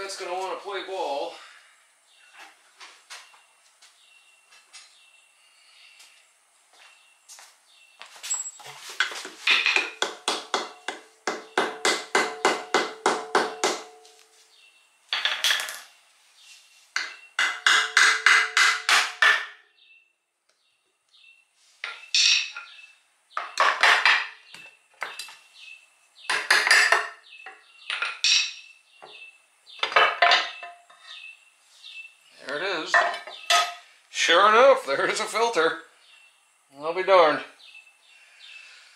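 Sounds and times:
metallic knocks and scrapes: 26.3 - 28.6.

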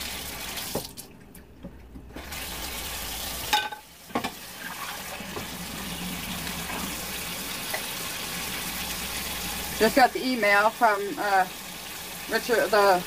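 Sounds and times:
tap water running into sink: 0.0 - 1.1, 2.0 - 13.0
dish clinking: 3.5 - 4.4.

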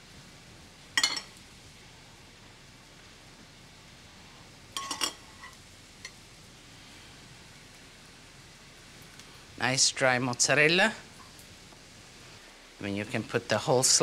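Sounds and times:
metal spoon clinking glass bowl: 1.0 - 1.3, 4.8 - 5.6.

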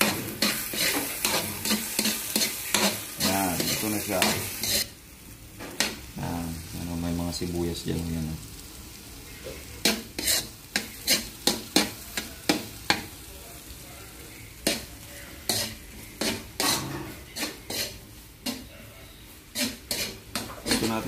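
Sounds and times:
metal spoon scraping a wok: 0.0 - 4.9, 9.8 - 12.3, 14.6 - 18.7, 19.3 - 21.0
frying sizzle: 0.0 - 21.0.

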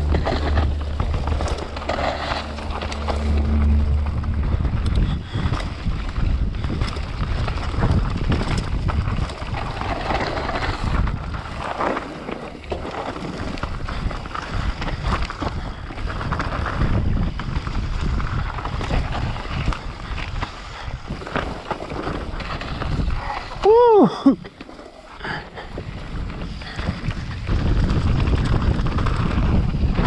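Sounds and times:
wind buffeting microphone: 0.0 - 11.8, 13.1 - 23.6, 25.6 - 30.0
tyres rumbling on dirt: 0.0 - 14.8
bike rattles and knocks: 5.3 - 20.2, 21.1 - 23.5.

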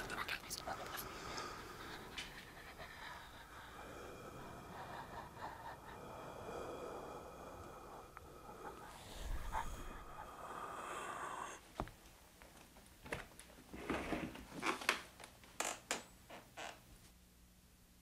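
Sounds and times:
steady hiss: 0.0 - 11.9.

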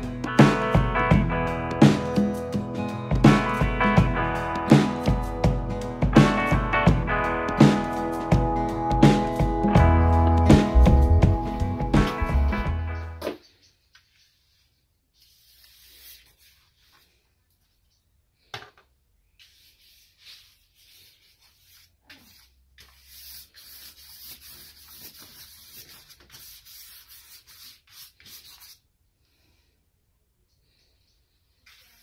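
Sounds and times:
paintbrush scraping on paper: 13.9 - 17.2, 19.3 - 28.8, 31.5 - 32.0.

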